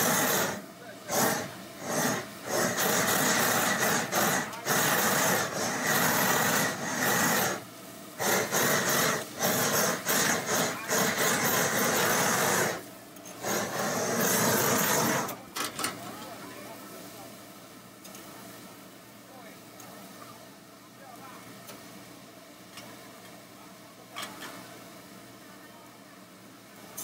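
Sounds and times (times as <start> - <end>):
blowtorch flame hissing: 0.0 - 15.4.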